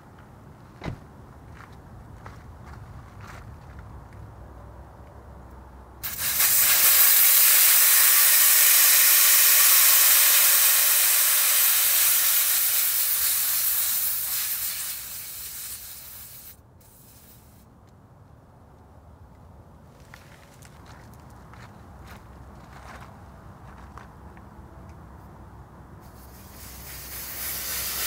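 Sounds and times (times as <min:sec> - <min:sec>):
air hissing from tyre valve: 0:06.0 - 0:17.7, 0:26.0 - 0:28.0.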